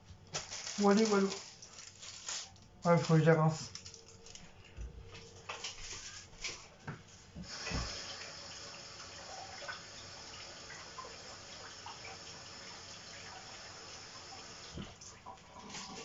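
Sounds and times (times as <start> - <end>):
tap running into a sink: 7.4 - 15.2.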